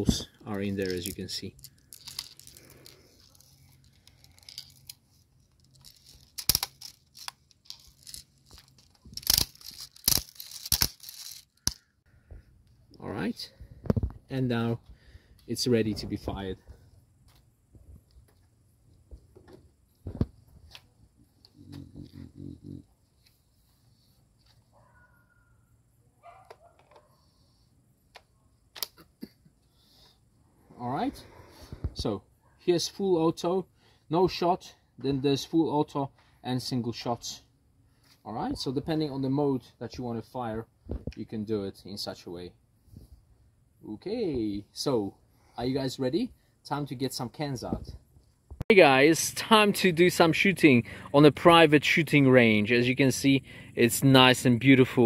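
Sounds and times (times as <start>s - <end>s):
plastic magazine clicks and rattles: 5.6s - 11.9s.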